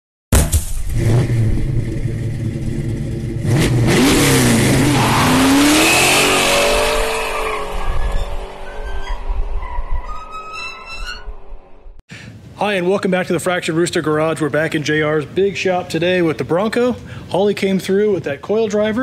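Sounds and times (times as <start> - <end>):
car engine revving: 0.8 - 9.6.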